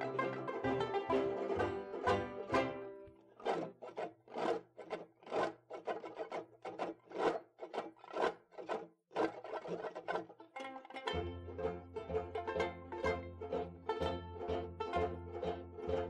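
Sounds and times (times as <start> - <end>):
rhythmic rasping scrapes: 1.5 - 10.4.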